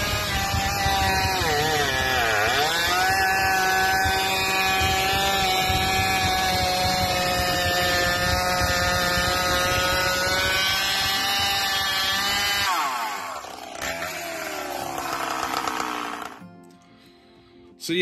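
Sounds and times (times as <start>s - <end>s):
chainsaw cutting log: 0.0s - 16.6s.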